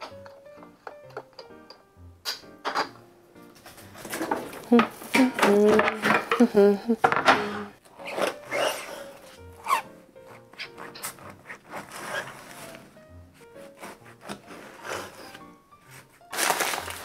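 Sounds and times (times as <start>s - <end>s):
light background music: 0.0s - 17.0s
knife sawing through bread: 10.4s - 12.8s, 13.6s - 16.1s.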